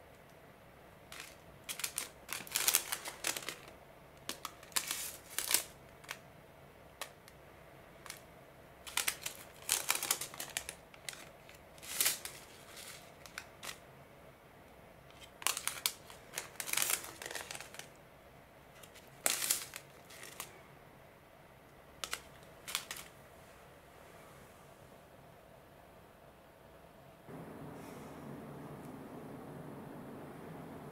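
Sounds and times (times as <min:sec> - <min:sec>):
plastic sachets crinkling: 0:01.1 - 0:06.2, 0:08.0 - 0:13.8, 0:15.1 - 0:18.0, 0:18.7 - 0:20.6, 0:22.0 - 0:23.2.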